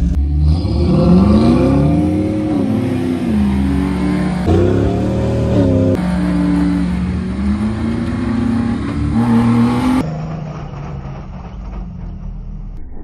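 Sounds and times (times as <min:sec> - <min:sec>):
car engine revving hard: 0:00.0 - 0:10.0.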